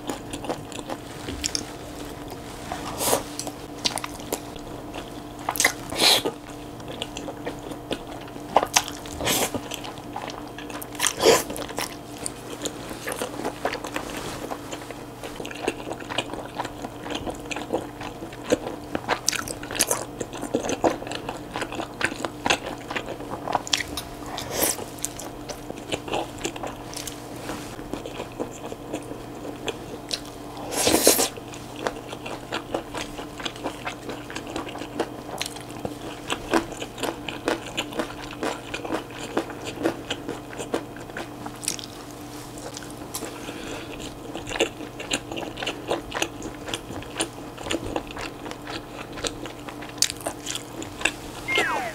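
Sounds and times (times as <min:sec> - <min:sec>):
person chewing food: 0:00.0 - 0:51.9.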